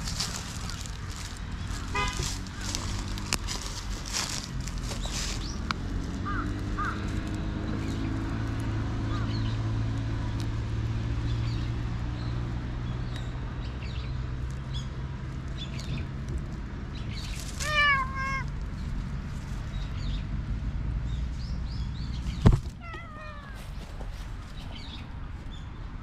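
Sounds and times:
cat meowing: 0:17.6 - 0:18.5, 0:22.8 - 0:23.8.

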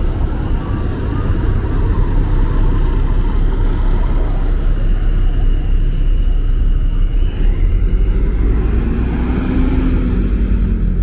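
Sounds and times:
bus driving past: 0:07.3 - 0:11.0.

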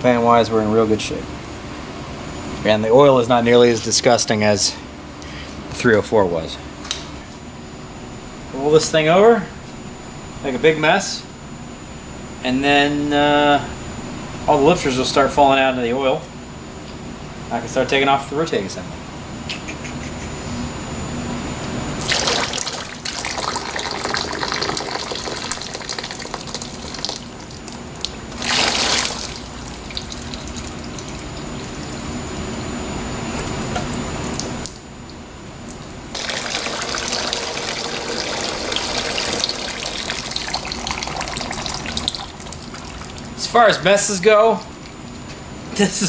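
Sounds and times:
oil pouring and dribbling: 0:22.0 - 0:32.2, 0:36.2 - 0:43.4.

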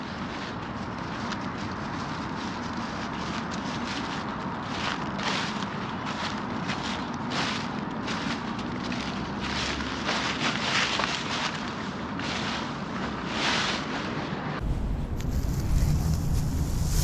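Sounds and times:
footsteps rustling: 0:00.0 - 0:17.0
wind rumble on microphone: 0:12.8 - 0:17.0.

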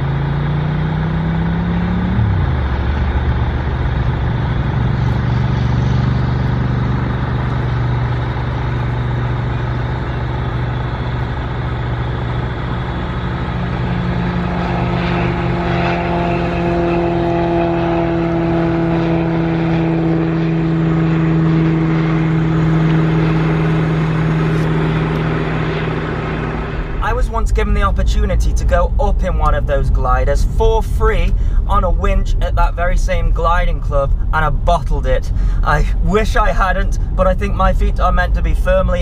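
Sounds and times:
propeller plane engine droning: 0:00.0 - 0:39.0.

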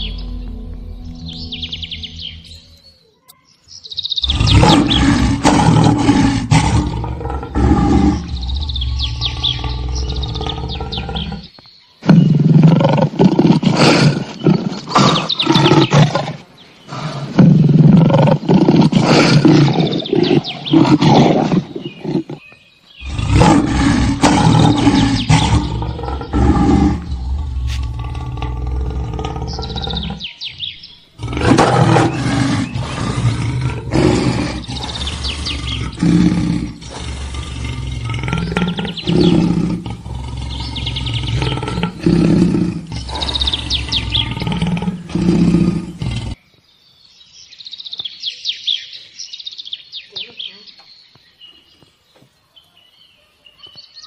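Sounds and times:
lion roaring and growling: 0:04.2 - 0:22.4, 0:23.0 - 0:30.4, 0:31.2 - 0:46.4.

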